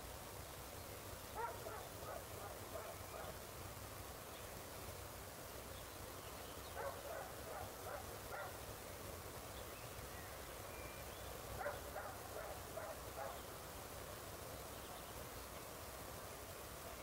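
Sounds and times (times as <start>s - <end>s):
dog barking faintly: 1.4s - 3.4s, 6.8s - 8.6s, 11.6s - 13.5s.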